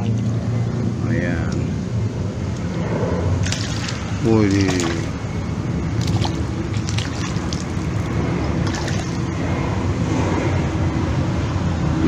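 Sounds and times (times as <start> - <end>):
steady low rumble: 0.0 - 12.0
fish thrashing water splashes: 3.4 - 9.3.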